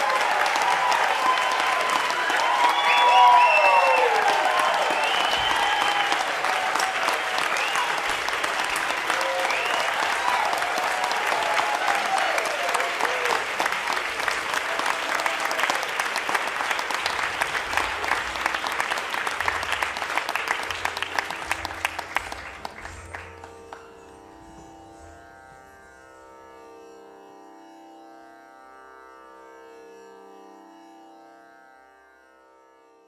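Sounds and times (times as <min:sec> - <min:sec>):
audience applauding: 0:00.0 - 0:24.8.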